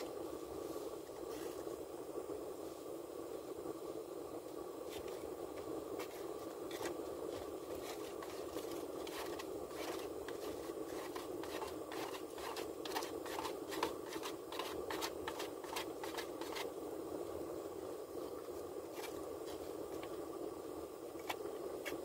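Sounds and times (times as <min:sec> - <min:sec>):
clicks and scrapes of eating: 0:06.0 - 0:16.7.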